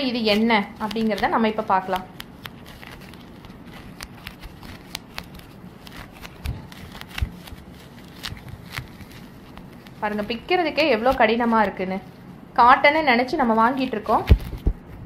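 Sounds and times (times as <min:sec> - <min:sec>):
tearing material rustling: 0:00.0 - 0:11.9.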